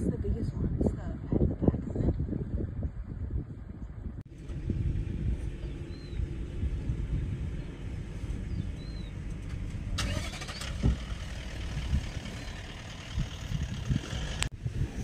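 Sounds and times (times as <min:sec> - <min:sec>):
vehicle engine idling: 0:04.3 - 0:14.5
faint bird chirps: 0:05.6 - 0:06.2, 0:08.5 - 0:09.2.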